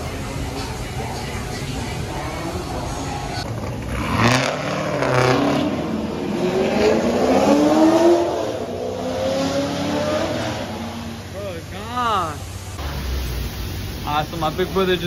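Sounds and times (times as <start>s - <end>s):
car engine accelerating: 1.8s - 11.8s.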